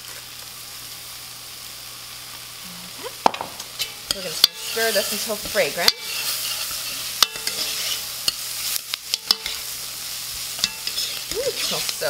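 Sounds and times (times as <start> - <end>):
vegetables sizzling in oil: 0.0 - 12.0
metal spoon clacking against pot: 10.6 - 12.0.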